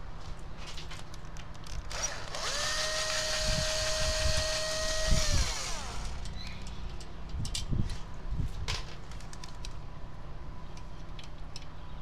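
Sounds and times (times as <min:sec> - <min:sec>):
power drill whining: 0:01.9 - 0:06.3.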